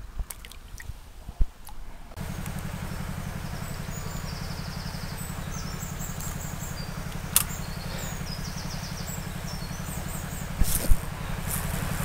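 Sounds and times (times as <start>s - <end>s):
birds chirping: 2.2s - 12.0s
small motor throbbing: 2.2s - 12.0s
sharp click: 7.1s - 7.6s.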